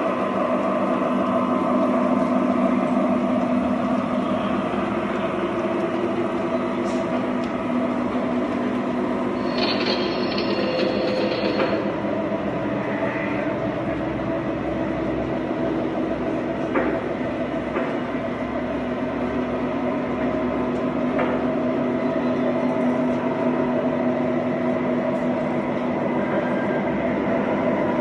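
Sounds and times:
model train cars rolling on track: 0.0s - 21.8s.

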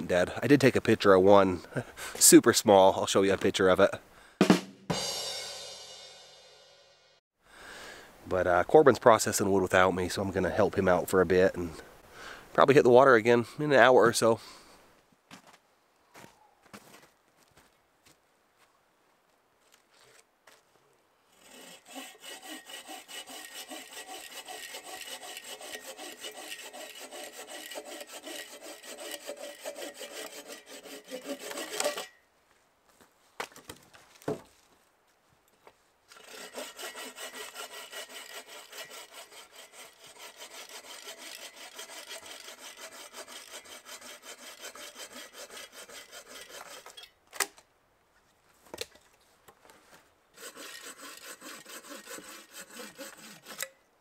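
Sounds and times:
bow saw cutting a log: 21.3s - 32.2s, 36.1s - 47.0s, 50.4s - 53.8s.

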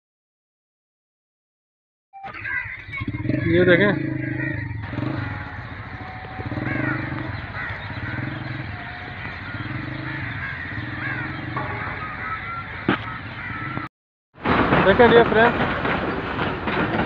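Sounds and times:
birds chirping: 2.2s - 13.9s
pulsing engine drone: 2.3s - 13.9s.

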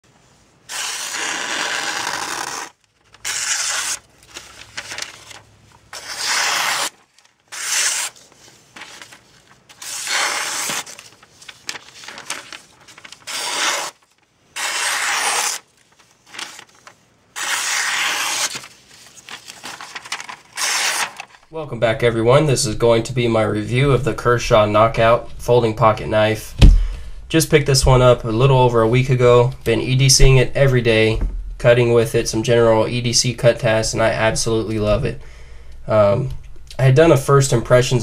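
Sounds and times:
knife slicing newspaper: 0.7s - 21.3s.

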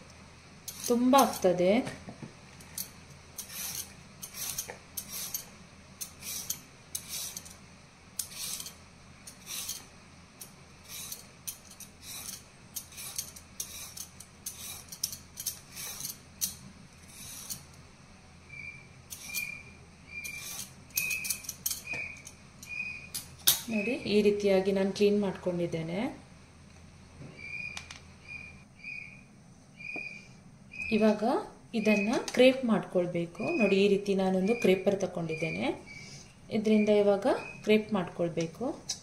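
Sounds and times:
peeler scraping carrot: 0.7s - 1.5s, 3.4s - 7.6s, 8.2s - 9.9s, 10.8s - 17.7s, 19.1s - 22.2s.

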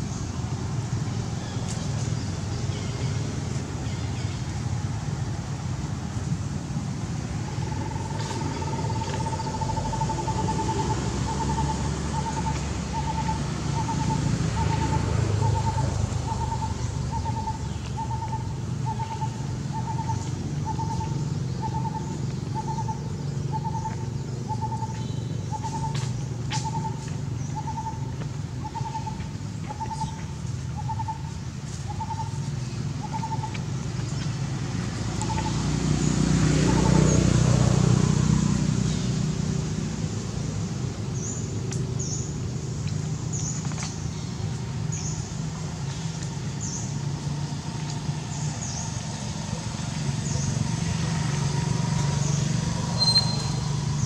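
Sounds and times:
bird hooting: 7.5s - 22.0s, 30.8s - 31.3s, 33.0s - 33.5s.

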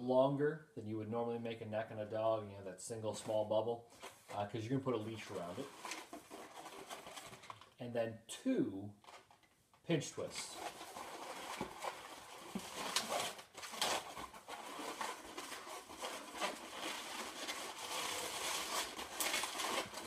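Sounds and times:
balloon squeaks: 10.9s - 20.0s
latex balloon rubbing and creaking: 10.9s - 20.0s.

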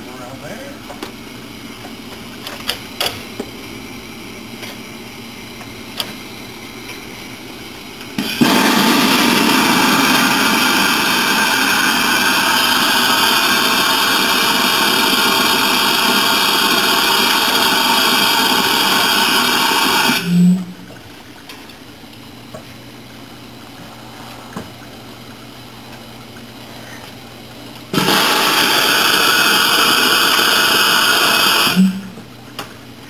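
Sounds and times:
loud hiss of steam: 8.2s - 20.6s, 27.9s - 32.2s.

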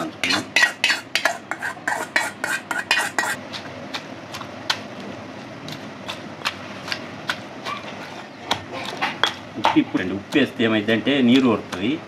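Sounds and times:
metal spoon scraping metal pan: 0.0s - 3.4s
stone pestle pounding in mortar: 6.1s - 12.0s.

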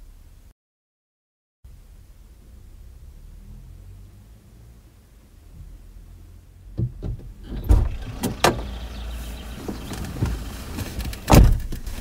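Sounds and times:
car door latch clicks and knocks: 6.8s - 8.7s, 11.1s - 11.9s
car door thumping shut: 6.8s - 8.7s, 11.2s - 11.9s
rustling: 7.4s - 12.0s.

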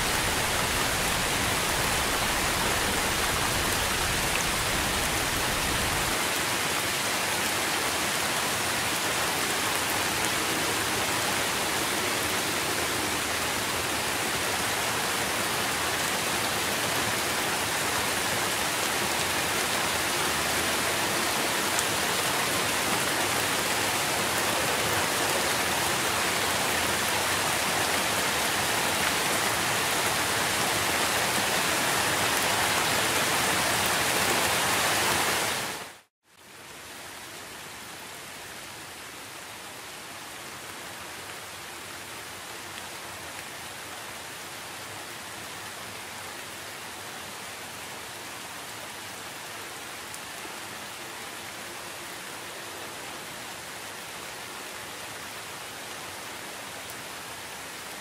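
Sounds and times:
waterfall rushing: 0.0s - 36.1s.

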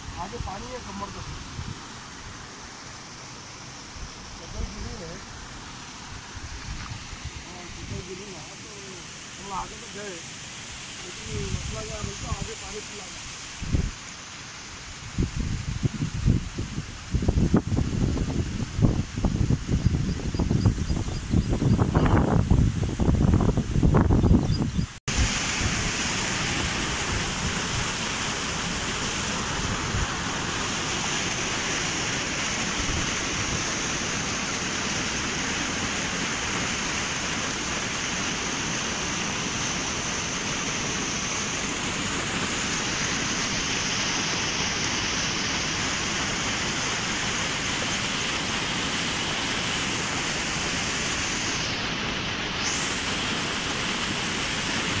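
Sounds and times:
fast-flowing river rushing: 3.6s - 14.8s, 25.1s - 55.0s.

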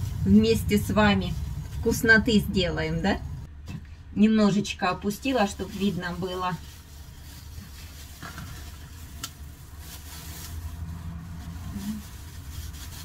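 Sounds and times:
plastic bag rustling: 0.0s - 2.8s, 5.3s - 13.0s
steady low hum: 0.0s - 7.8s.

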